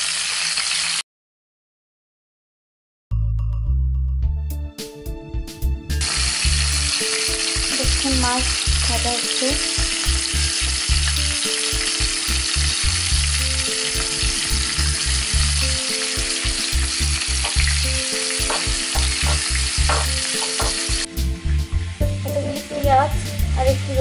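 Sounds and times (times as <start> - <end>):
fish sizzling in hot oil: 0.0 - 1.0, 6.0 - 24.0
background music with steady beat: 4.1 - 24.0.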